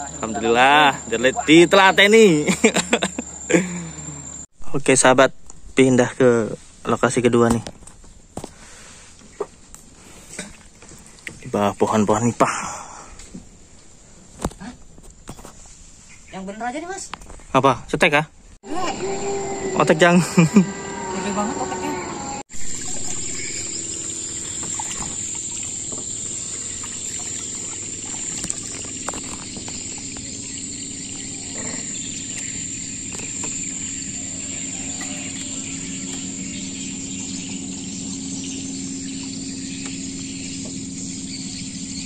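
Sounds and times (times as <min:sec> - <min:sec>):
insects droning: 0:00.0 - 0:42.0
low steady hum: 0:18.7 - 0:42.0.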